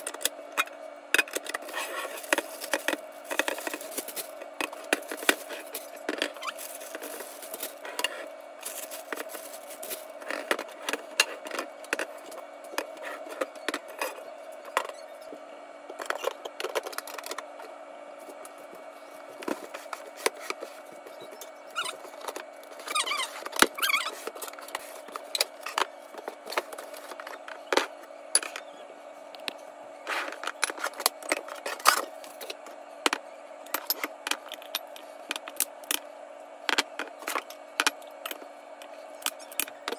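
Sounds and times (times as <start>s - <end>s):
squeak: 22.8s - 24.2s.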